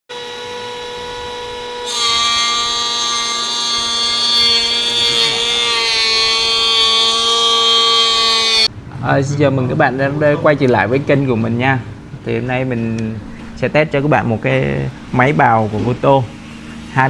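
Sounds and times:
wood planer whining: 0:00.1 - 0:08.7.

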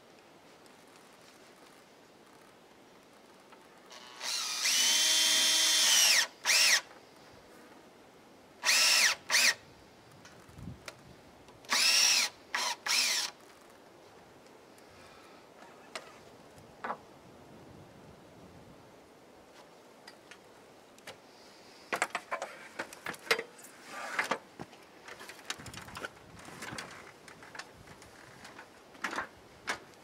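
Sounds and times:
drill motor whine: 0:03.9 - 0:06.8, 0:08.6 - 0:09.6, 0:11.7 - 0:13.3
power drill driving screw into wood: 0:03.9 - 0:06.9, 0:08.6 - 0:09.6, 0:11.7 - 0:13.4.

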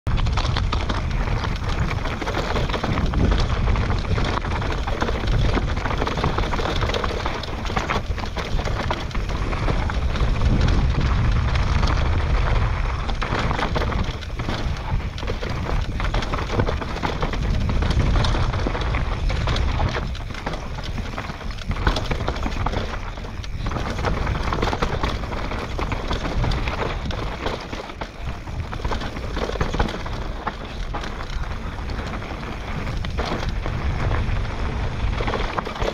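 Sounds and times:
bike rattling over bumps: 0:00.1 - 0:35.9
tyres rolling over dirt: 0:00.1 - 0:35.9
wind buffeting microphone: 0:00.1 - 0:35.9.

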